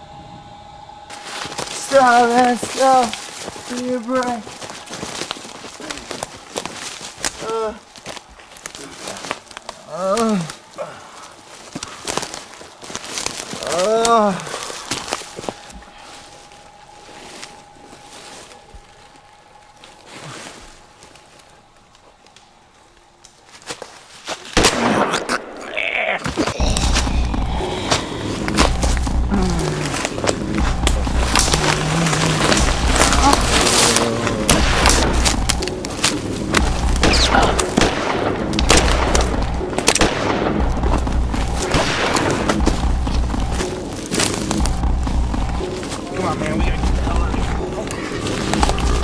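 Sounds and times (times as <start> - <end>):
faint rustling footsteps: 1.1 - 24.5, 26.8 - 49.0
sharp hits: 26.5 - 49.0
deep bass pulse: 26.6 - 49.0.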